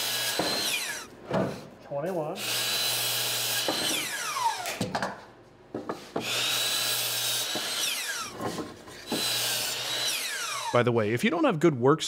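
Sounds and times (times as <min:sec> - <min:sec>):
miter saw cutting wood: 0:00.0 - 0:01.1, 0:02.4 - 0:04.8, 0:06.1 - 0:10.9
saw motor winding down: 0:00.0 - 0:01.1, 0:02.4 - 0:04.8, 0:06.2 - 0:08.4, 0:09.1 - 0:10.8.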